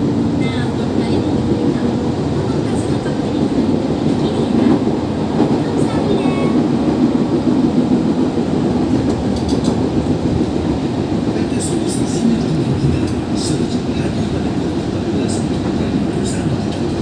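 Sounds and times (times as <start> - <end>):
electric train running rumble: 0.0 - 17.0.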